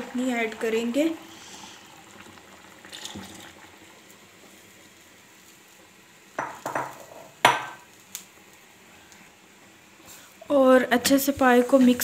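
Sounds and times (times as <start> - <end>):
kitchenware clattering: 6.4 - 7.9.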